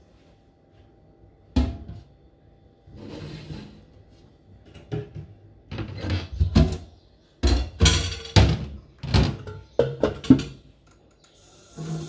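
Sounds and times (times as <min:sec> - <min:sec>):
dishes and pan clattering in sink: 0:04.7 - 0:10.6.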